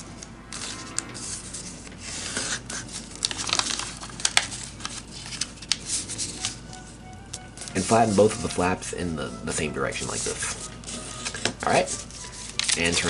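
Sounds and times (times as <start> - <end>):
paper creases crackling: 1.9 - 13.0
paper rustling and crinkling: 2.1 - 7.0, 7.6 - 9.0, 9.6 - 13.0.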